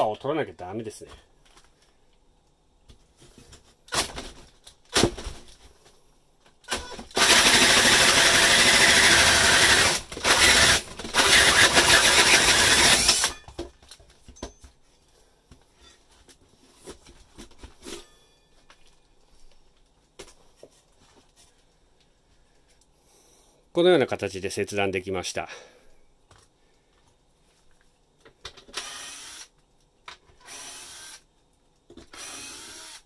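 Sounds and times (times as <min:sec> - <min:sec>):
drill cutting with hole saw: 0:06.7 - 0:13.4, 0:28.8 - 0:29.5, 0:30.4 - 0:31.2, 0:32.1 - 0:33.0.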